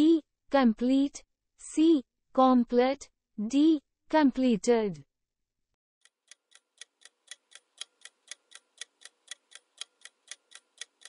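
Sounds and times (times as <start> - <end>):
clock ticking: 6.0 - 11.0.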